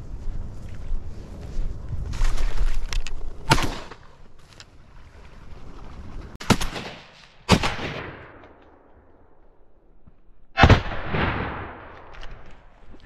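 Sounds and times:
shotgun shots echoing: 6.4s - 8.5s, 10.6s - 12.1s.

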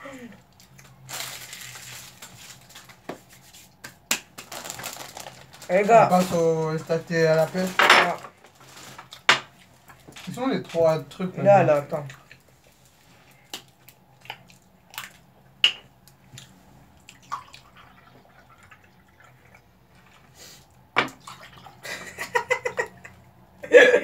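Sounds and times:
tea pouring into glasses: 17.1s - 19.7s.

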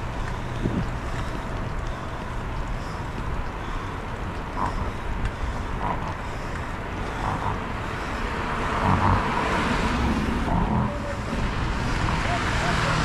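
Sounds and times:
bicycle road noise on asphalt: 0.0s - 13.0s
wind on microphone: 0.5s - 1.0s.

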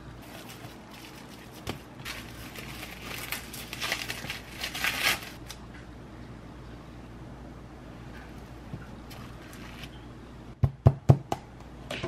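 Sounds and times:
plastic wrap crinkling: 0.2s - 5.6s.

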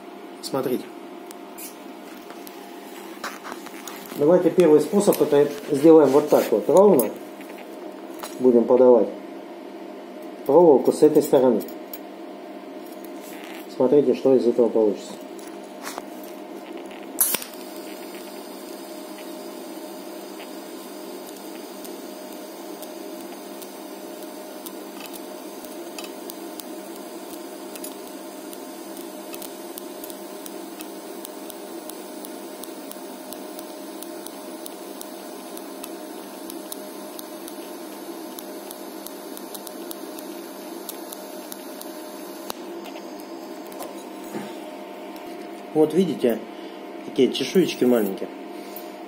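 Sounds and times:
welding arc hissing and humming: 0.0s - 8.8s, 12.6s - 49.0s
welding arc click: 16.7s - 44.0s.

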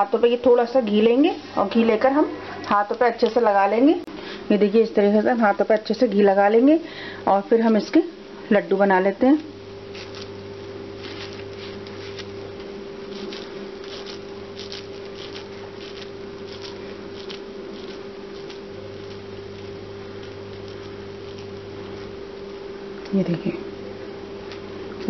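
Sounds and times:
steady low hum: 0.0s - 25.0s
hands squishing and patting dough: 9.4s - 23.2s.

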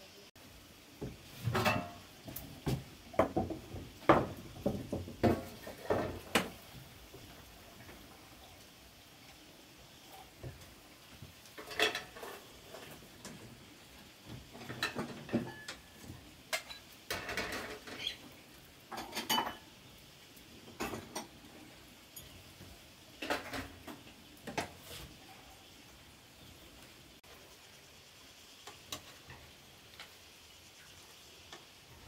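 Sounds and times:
utensils clinking against pots: 1.4s - 2.2s, 11.6s - 13.4s, 14.5s - 18.3s, 18.9s - 19.8s, 20.7s - 21.4s, 22.1s - 22.6s, 23.2s - 24.8s.

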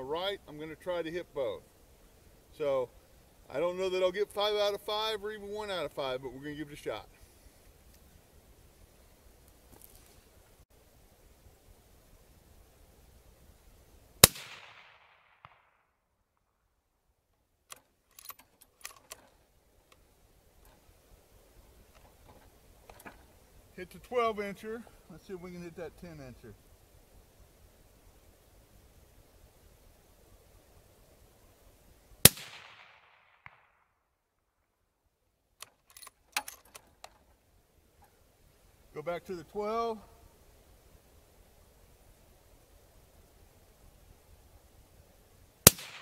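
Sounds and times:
suppressed rifle shot with echo: 14.2s - 15.9s, 32.2s - 34.0s, 45.6s - 46.0s
bullet striking steel target: 45.7s - 46.0s.

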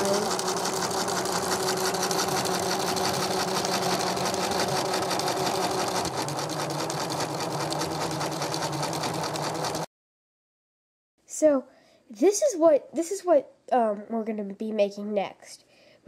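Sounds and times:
sewing machine ticking rattle: 0.0s - 9.9s.

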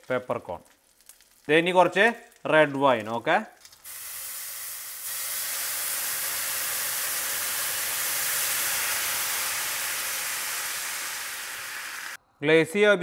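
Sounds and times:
wine sizzling in hot wok: 3.6s - 12.2s.

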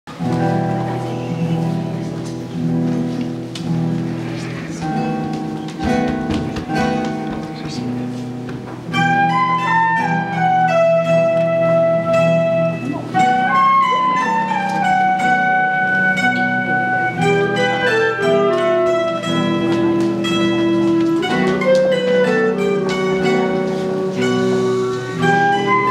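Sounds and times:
classical guitar: 0.1s - 25.9s
small plucked string instrument: 0.2s - 25.9s
flute melody: 8.9s - 25.9s.

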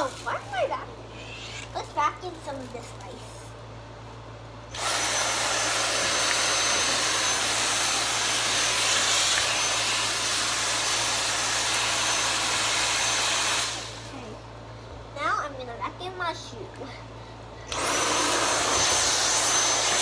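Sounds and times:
vacuum cleaner whine: 4.7s - 14.2s, 17.7s - 20.0s.

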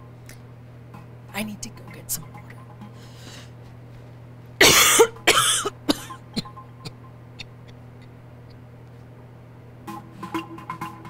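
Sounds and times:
woman coughing: 4.6s - 7.8s.

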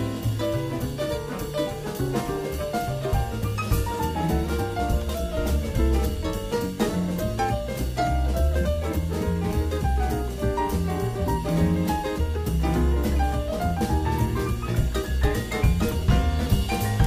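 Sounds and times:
steady drum beat: 0.0s - 17.0s
walking bass line: 0.0s - 17.0s.

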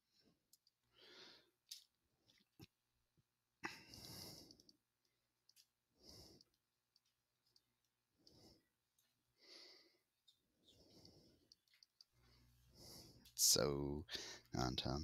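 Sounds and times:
faint breathing: 0.1s - 1.6s, 3.6s - 4.8s, 5.9s - 6.7s, 8.2s - 13.4s, 14.1s - 14.6s.

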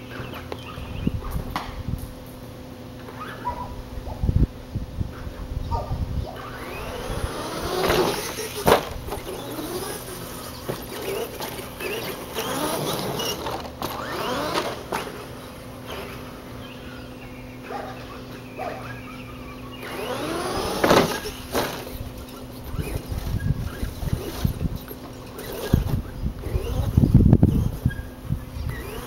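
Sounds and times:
rc truck motor whining: 6.4s - 17.1s, 18.0s - 29.0s
truck hitting the ground: 7.7s - 9.3s.

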